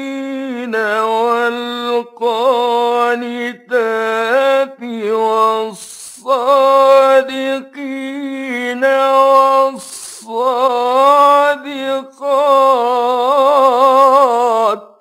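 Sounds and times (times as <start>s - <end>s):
man chanting: 0.0s - 15.0s
man taking a breath: 5.8s - 6.2s, 9.8s - 10.3s.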